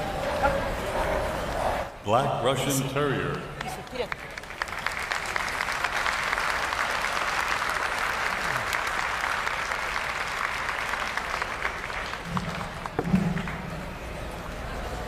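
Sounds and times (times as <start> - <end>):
audience applauding: 3.6 - 13.8.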